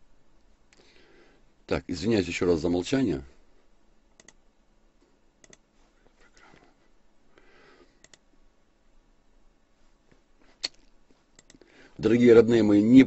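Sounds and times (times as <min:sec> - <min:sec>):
computer mouse clicking: 0:04.2 - 0:04.4, 0:05.4 - 0:05.7, 0:08.0 - 0:08.2, 0:11.4 - 0:11.6.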